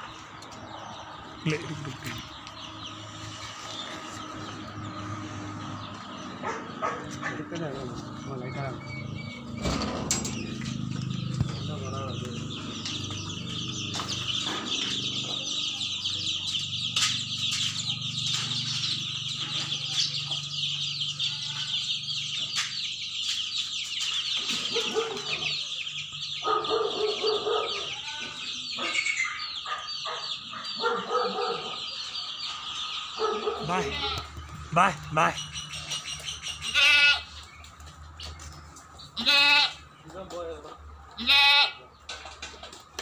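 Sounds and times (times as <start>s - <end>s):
chicks cheeping: 0.0s - 43.0s
clucking calls: 22.5s - 39.7s.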